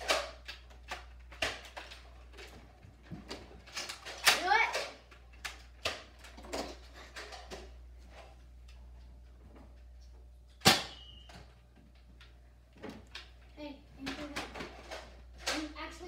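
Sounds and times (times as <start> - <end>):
loud sharp snap: 10.6 - 11.1.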